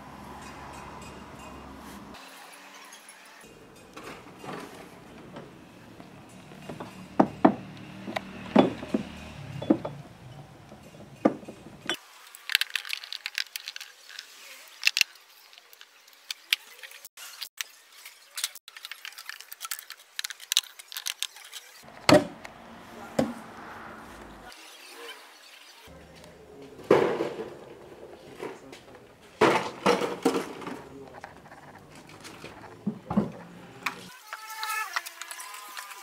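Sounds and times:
glass bottles clinking: 3.6s - 12.0s.

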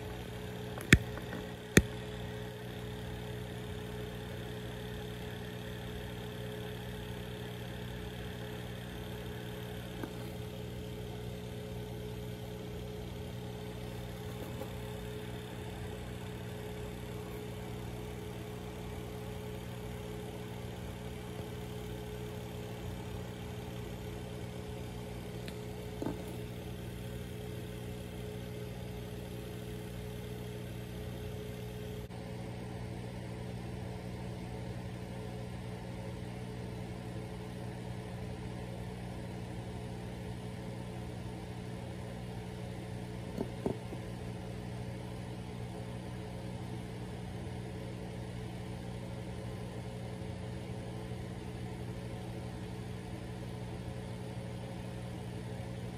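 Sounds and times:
aquarium equipment hum: 0.0s - 55.9s.

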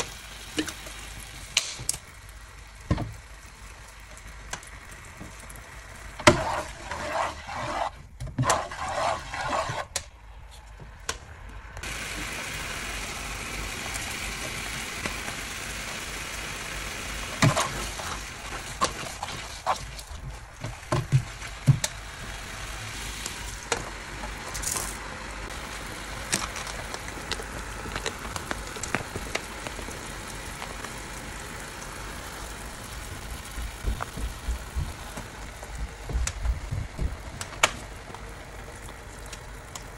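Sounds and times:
sauce sizzling in a frying pan: 0.0s - 6.6s, 11.8s - 18.9s, 25.0s - 35.8s.

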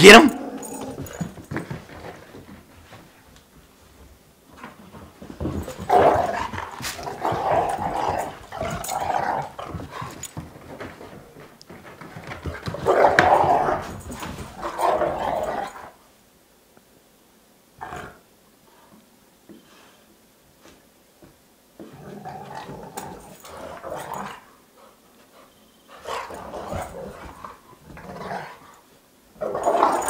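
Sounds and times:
dog making rough noises: 5.6s - 10.2s.

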